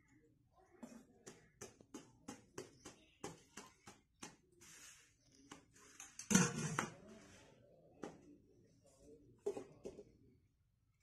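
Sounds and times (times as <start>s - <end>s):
utensils clinking on clay pot: 6.0s - 7.0s.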